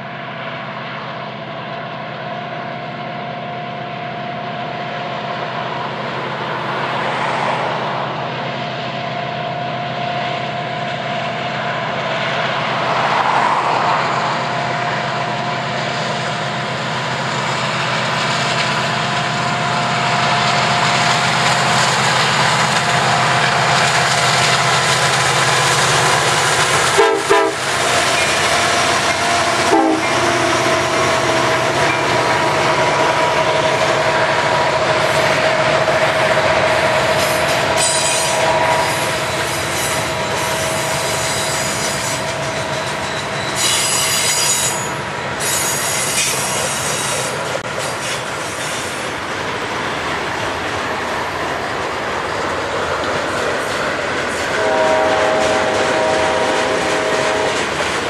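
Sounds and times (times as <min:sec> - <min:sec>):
diesel locomotive rumble: 0:00.0 - 0:58.0
boxcars rolling past: 0:05.2 - 0:58.0
train horn blasts: 0:26.9 - 0:27.8, 0:28.6 - 0:32.2, 0:36.8 - 0:42.3, 0:54.5 - 0:57.8.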